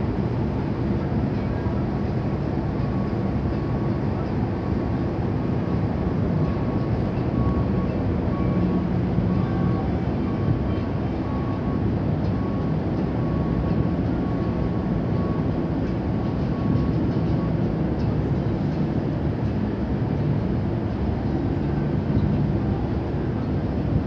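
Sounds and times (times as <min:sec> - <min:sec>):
ship engines rumbling: 0:00.0 - 0:24.0.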